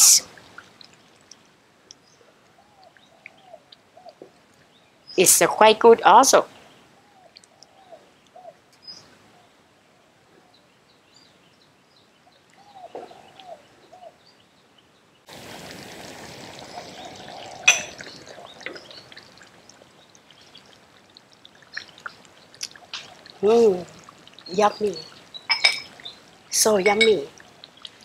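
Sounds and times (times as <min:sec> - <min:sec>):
steady hiss: 0:15.3 - 0:20.8
curry bubbling in a wok: 0:15.3 - 0:26.5.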